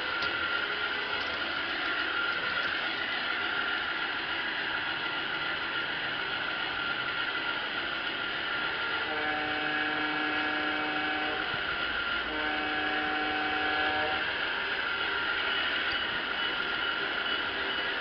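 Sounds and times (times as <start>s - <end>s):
model train running noise: 0.0s - 18.0s
locomotive horn blasts: 8.8s - 14.5s.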